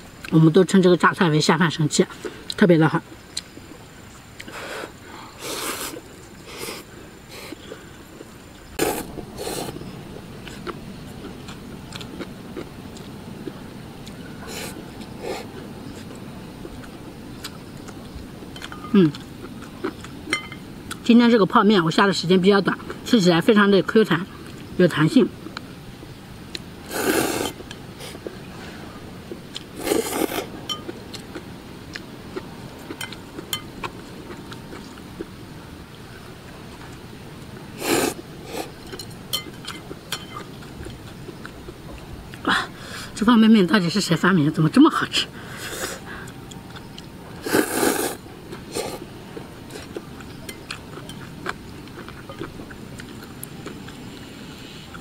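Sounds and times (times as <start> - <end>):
chewing: 5.4 - 21.0, 29.3 - 35.4, 38.5 - 42.4, 45.8 - 55.0
person slurping noodles: 8.8 - 9.8, 26.9 - 28.2, 29.8 - 30.5, 37.8 - 38.7, 47.4 - 49.0.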